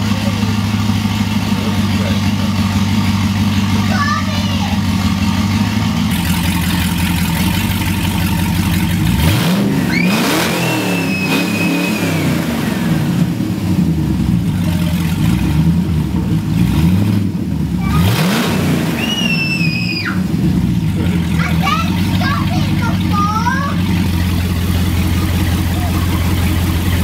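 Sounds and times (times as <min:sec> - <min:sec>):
car engine idling and revving: 0:00.0 - 0:27.0
high whistling tone: 0:09.9 - 0:12.4, 0:19.0 - 0:20.2.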